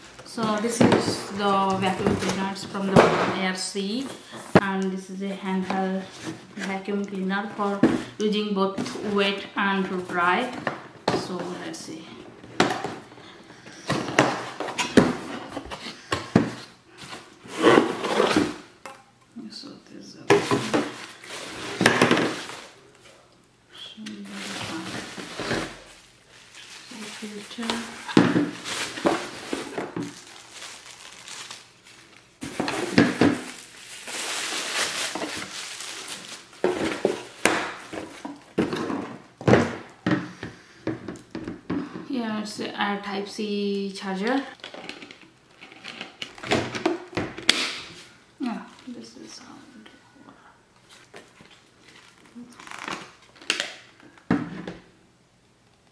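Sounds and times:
packaging rustling: 24.2 - 39.2, 50.8 - 54.2.

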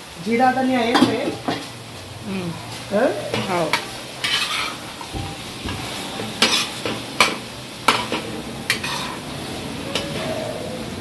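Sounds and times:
meat sizzling in oil: 0.0 - 11.0
metal spoon scraping a pan: 2.6 - 10.6.

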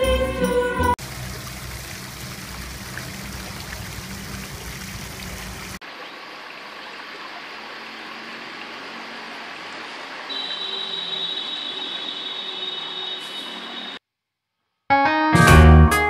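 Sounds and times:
fountain water rushing: 1.0 - 12.4
thin flow of water: 1.0 - 12.4.

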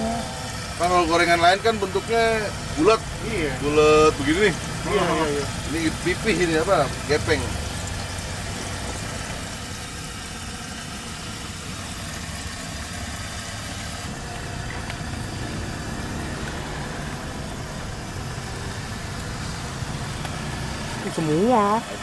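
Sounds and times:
hot oil sizzling in a wok: 0.0 - 22.0.

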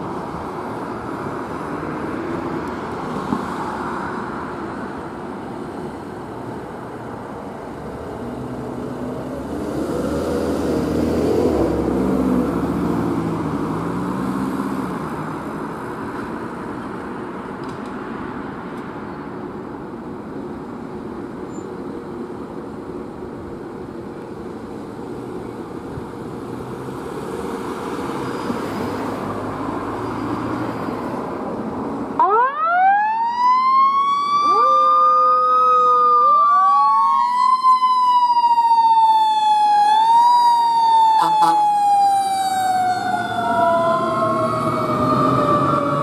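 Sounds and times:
road and vehicle noise: 0.0 - 46.0
fire engine siren wailing: 32.2 - 46.0.

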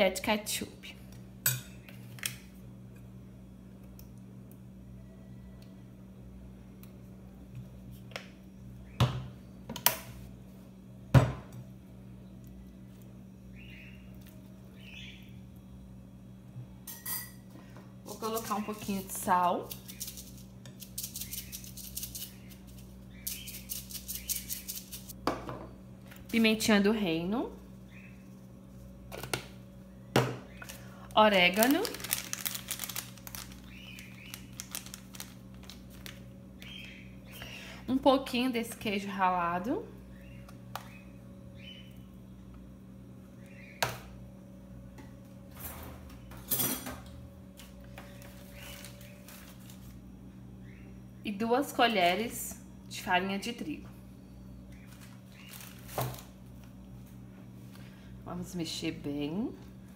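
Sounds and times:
low steady hum: 0.0 - 59.9
seasoning shaker rattling: 18.1 - 25.1, 31.5 - 36.2.

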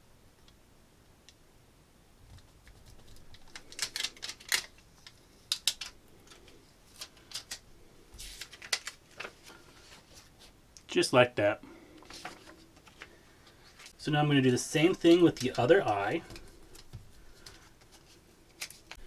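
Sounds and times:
vinyl pieces clicking and tapping: 2.3 - 7.6.

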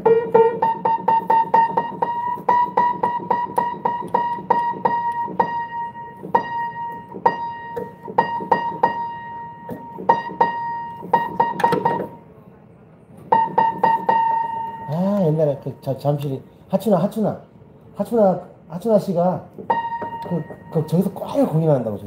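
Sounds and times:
piano note struck repeatedly: 0.0 - 12.4, 13.3 - 15.8, 19.6 - 21.6.

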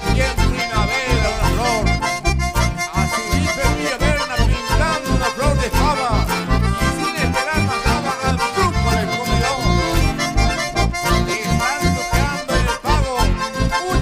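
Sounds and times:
bass pulses: 0.0 - 14.0
live band with accordions: 0.0 - 14.0.

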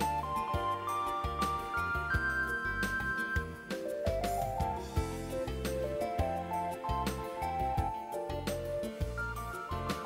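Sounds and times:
gentle stepping melody: 0.0 - 10.0.

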